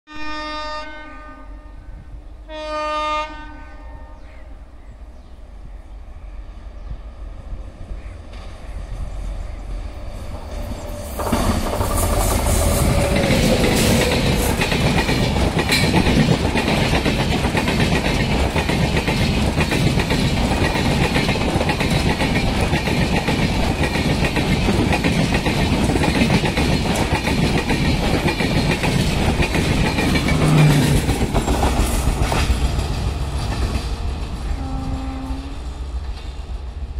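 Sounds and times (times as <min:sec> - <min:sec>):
train passing at speed: 0:00.3 - 0:36.9
wheels clacking over rail joints: 0:10.3 - 0:34.9.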